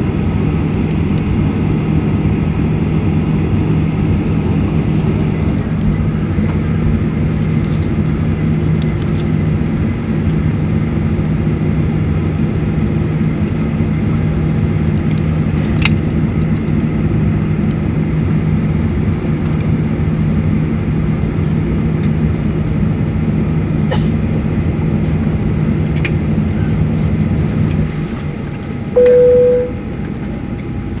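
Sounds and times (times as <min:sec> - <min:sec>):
aircraft cabin hum: 0:00.0 - 0:31.0
cabin chime: 0:29.0 - 0:29.8.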